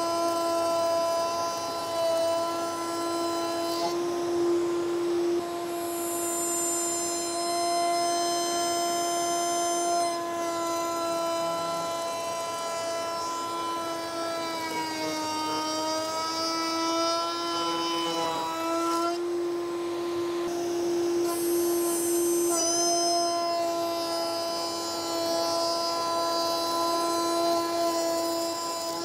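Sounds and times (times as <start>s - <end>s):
router whining cutting wood: 0.0s - 29.0s.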